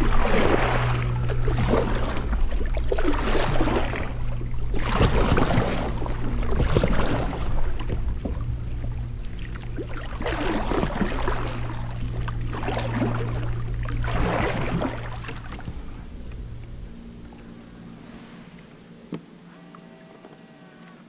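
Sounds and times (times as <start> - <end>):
kayak paddle splashing in water: 0.0 - 15.9
steady low hum: 0.0 - 21.0.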